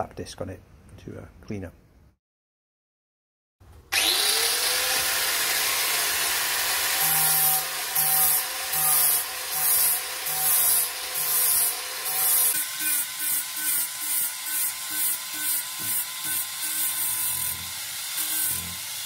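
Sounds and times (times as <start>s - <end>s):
angle grinder whine: 3.9s - 19.0s
grinder grinding steel weld: 3.9s - 19.0s.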